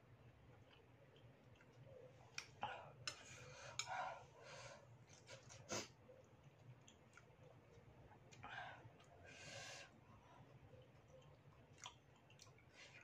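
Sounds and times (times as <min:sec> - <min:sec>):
chewing: 0:00.5 - 0:04.0, 0:05.0 - 0:09.2, 0:10.4 - 0:13.0
breathing: 0:02.7 - 0:05.0, 0:08.4 - 0:10.6.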